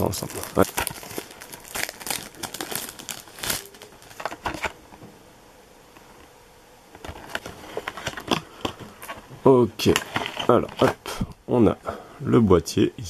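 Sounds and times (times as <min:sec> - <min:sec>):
plastic packaging crinkling: 0:00.0 - 0:04.8.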